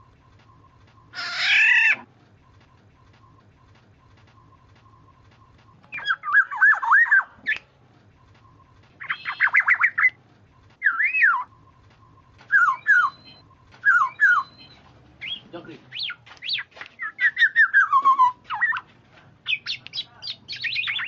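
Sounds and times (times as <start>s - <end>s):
oriole whistled calls: 0.6s - 2.1s, 5.9s - 7.7s, 8.4s - 10.2s, 10.8s - 21.0s.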